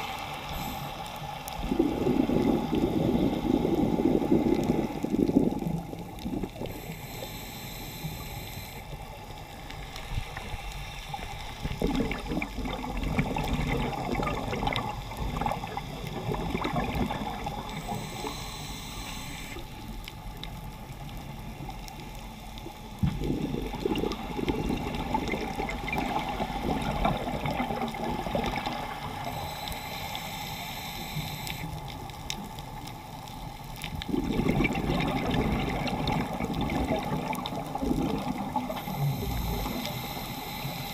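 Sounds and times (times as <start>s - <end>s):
regulator breath hiss: 0.0s - 3.8s, 6.7s - 9.2s, 17.6s - 20.0s, 29.2s - 31.8s, 38.7s - 40.9s
exhaled bubbles rushing: 1.6s - 6.7s, 11.6s - 17.9s, 23.0s - 29.2s, 33.9s - 39.8s.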